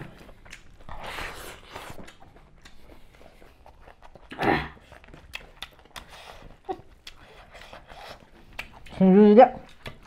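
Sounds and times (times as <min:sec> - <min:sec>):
chewing and mouth smacks: 0:00.0 - 0:10.0
short vocal grunt: 0:04.3 - 0:04.8.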